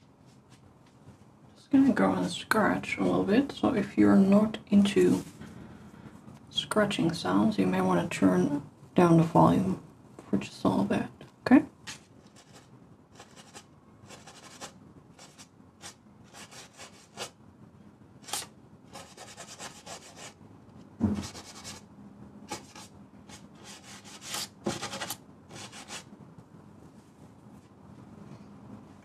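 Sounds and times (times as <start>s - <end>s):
steel wool scratching metal panel: 23.6s - 26.1s.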